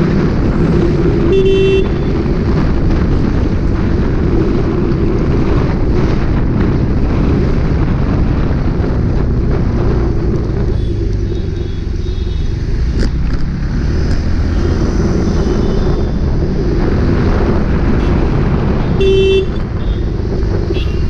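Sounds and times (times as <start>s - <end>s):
motorcycle engine rumble: 0.0s - 21.0s
wind noise on microphone: 0.0s - 21.0s
faint car horns: 1.3s - 2.1s, 18.9s - 20.0s.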